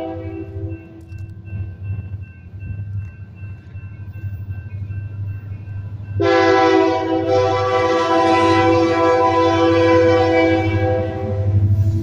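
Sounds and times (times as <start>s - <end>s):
locomotive air horn: 0.0s - 0.7s, 6.2s - 12.0s
locomotive rumble: 0.0s - 12.0s.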